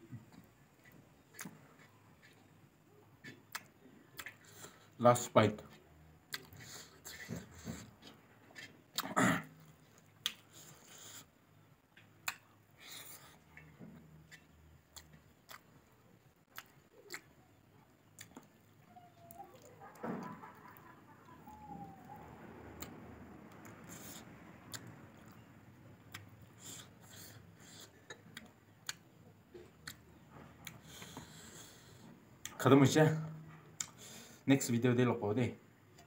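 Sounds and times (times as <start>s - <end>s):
mouth and lip sounds: 5.6s - 11.3s, 12.2s - 34.3s
faint bird calls: 18.8s - 22.4s.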